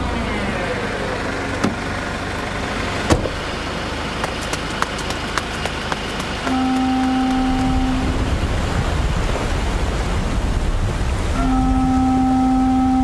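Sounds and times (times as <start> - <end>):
car engine and road noise: 0.0 - 13.0
sharp clicks and ticks: 4.2 - 7.8.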